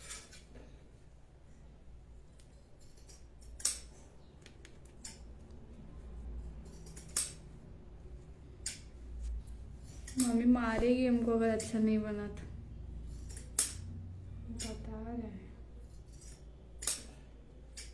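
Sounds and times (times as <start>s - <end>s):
cloth being braided by hand: 0.0s - 11.8s.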